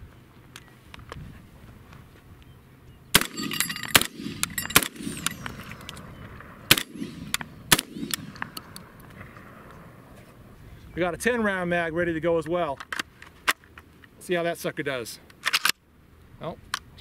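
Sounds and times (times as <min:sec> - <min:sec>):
shotgun shots echoing: 0:03.1 - 0:09.0.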